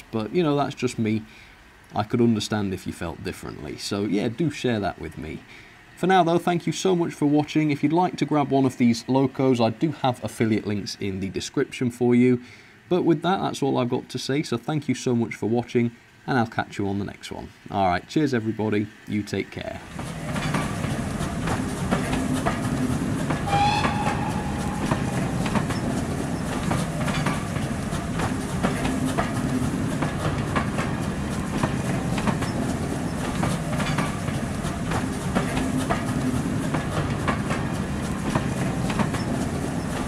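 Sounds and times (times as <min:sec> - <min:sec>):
wheels clicking over rail joints: 0:19.0 - 0:40.0
train carriages rumbling: 0:19.6 - 0:40.0
short high-pitched tone: 0:23.5 - 0:25.4.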